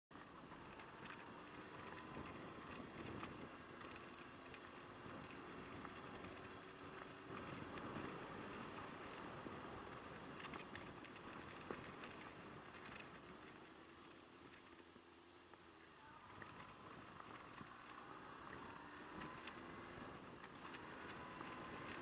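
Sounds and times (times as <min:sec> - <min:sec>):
faint motorcycle engine: 0:00.1 - 0:22.0
wind rumble: 0:00.2 - 0:14.8, 0:15.6 - 0:22.0
small ticks and knocks: 0:09.9 - 0:13.8.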